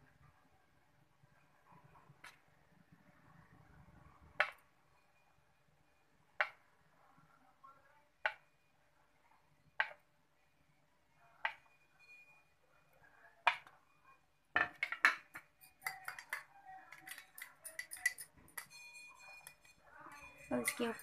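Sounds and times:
metal spoon clinking on bowl: 14.6 - 21.0.

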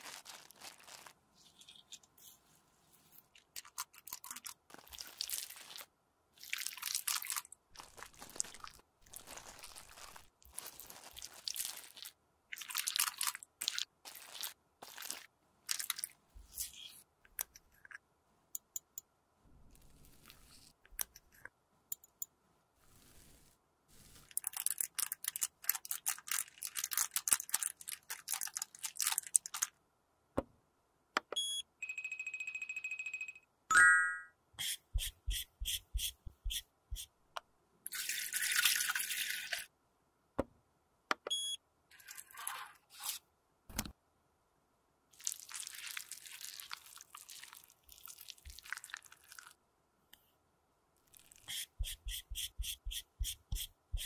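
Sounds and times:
metal spatula scraping granules: 41.9 - 43.2.

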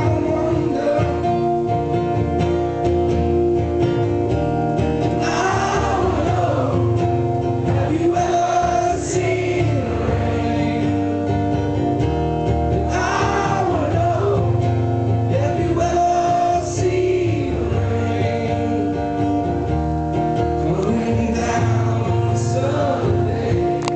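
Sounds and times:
man singing: 0.0 - 1.8, 5.2 - 7.0, 7.7 - 11.2, 12.8 - 19.3, 20.6 - 23.9
strummed acoustic guitar: 0.0 - 23.9.

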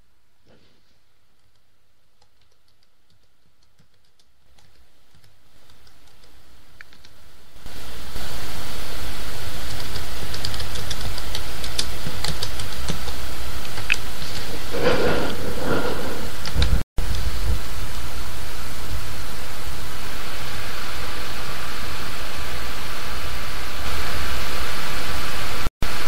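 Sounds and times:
keyboard typing and clicking: 2.2 - 7.2, 9.6 - 14.0
steady rushing noise: 7.4 - 26.0.

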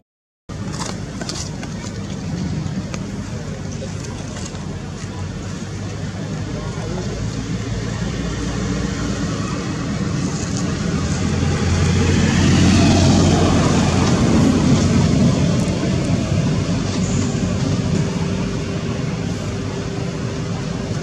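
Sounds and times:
motor vehicle passing by: 6.4 - 21.0.

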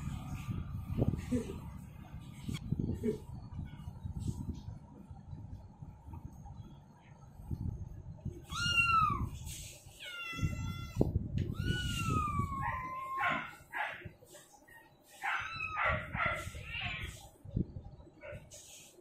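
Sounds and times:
cat meowing: 8.4 - 9.4, 10.0 - 13.5.

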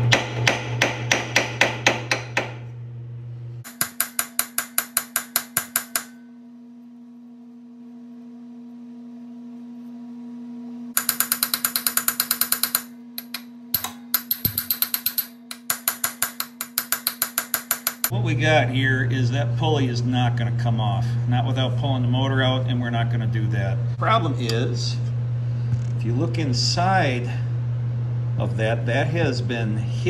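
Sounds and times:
low steady hum: 0.0 - 30.0
ratchet wrench clicking: 11.0 - 18.1.

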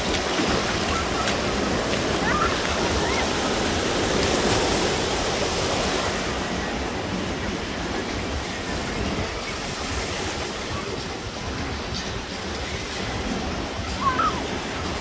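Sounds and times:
small waves breaking on beach: 0.0 - 15.0.

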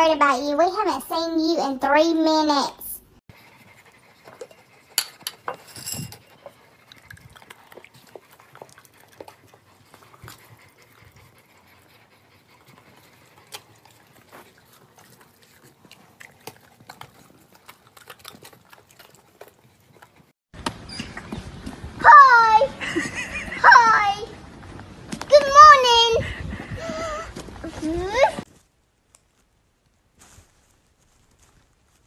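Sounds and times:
dogs breathing: 3.3 - 20.4, 24.2 - 28.5
ceramic jar lid clinking: 5.0 - 6.2.

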